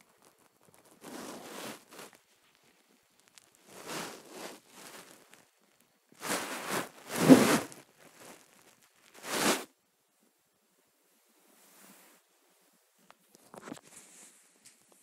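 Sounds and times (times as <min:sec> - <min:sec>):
hand rubbing puppy fur: 0:03.7 - 0:05.2.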